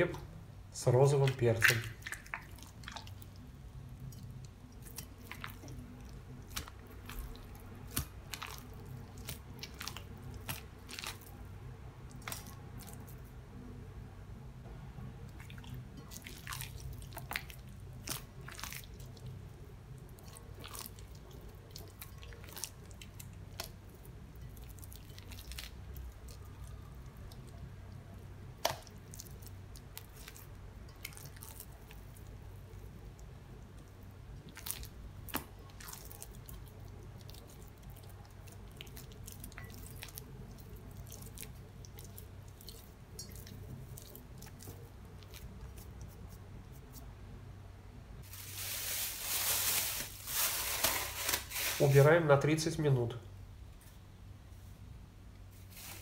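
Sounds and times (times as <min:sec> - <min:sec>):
dough squelching: 0:00.0 - 0:13.4, 0:15.2 - 0:47.2
sticky dough clicks: 0:28.6 - 0:30.2.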